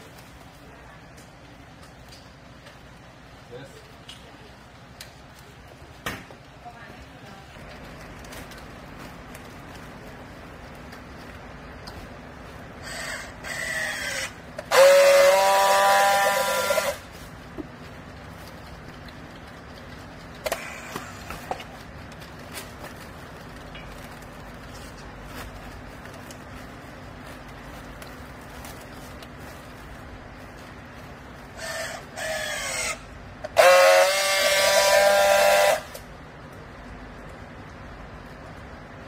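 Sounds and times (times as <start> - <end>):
low steady hum: 0.0 - 39.0
loud steady buzzing tone: 13.4 - 17.3, 32.9 - 36.2.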